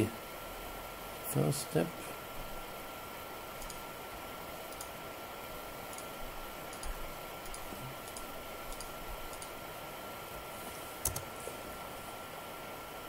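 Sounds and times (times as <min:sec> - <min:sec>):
room hiss: 0:00.0 - 0:13.0
faint computer clicks: 0:03.6 - 0:03.8, 0:04.7 - 0:05.0, 0:06.7 - 0:09.6, 0:11.0 - 0:11.3.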